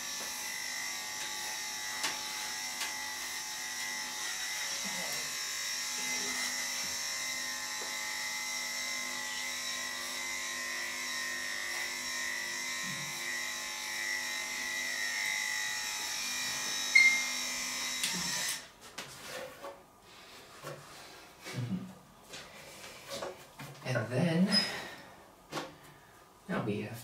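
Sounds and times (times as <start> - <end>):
electric clippers humming: 0.0 - 18.7.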